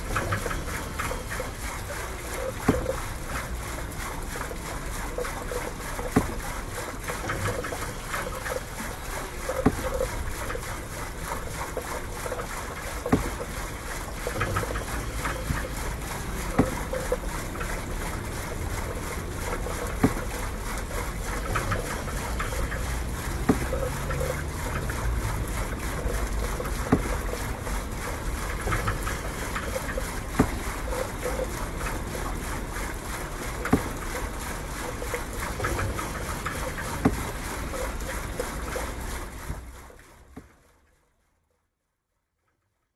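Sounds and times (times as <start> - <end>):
water noise: 0.0 - 40.9
wind: 0.0 - 42.8.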